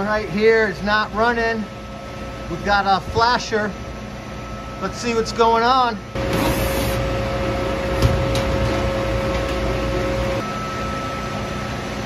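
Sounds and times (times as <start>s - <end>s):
boiler and fan hum: 0.0s - 12.0s
held whine: 0.0s - 12.0s.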